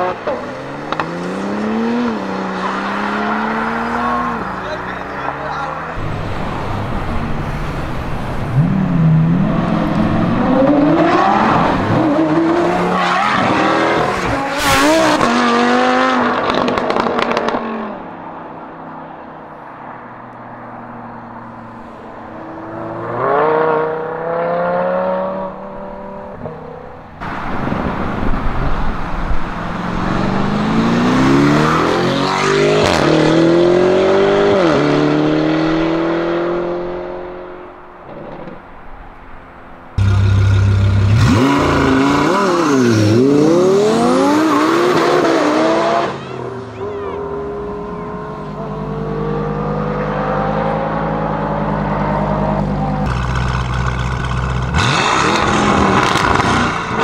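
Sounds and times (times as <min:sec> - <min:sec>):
sports car engine accelerating: 0:00.0 - 0:07.4, 0:40.0 - 0:57.0.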